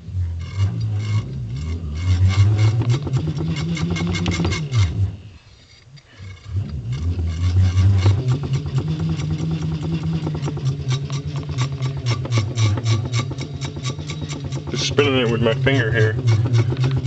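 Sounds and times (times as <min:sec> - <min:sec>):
motor rotor humming: 0:00.0 - 0:17.0
rapid even ticking: 0:06.2 - 0:17.0.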